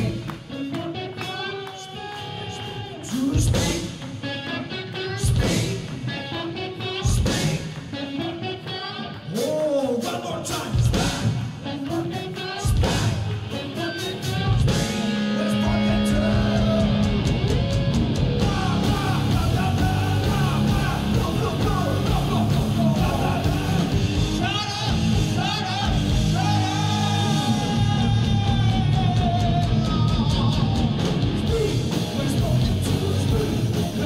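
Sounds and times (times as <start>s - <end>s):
person singing: 0.0s - 17.3s, 18.4s - 34.0s
drums: 0.0s - 34.0s
electric guitars: 0.0s - 34.0s
bass guitar: 12.6s - 34.0s.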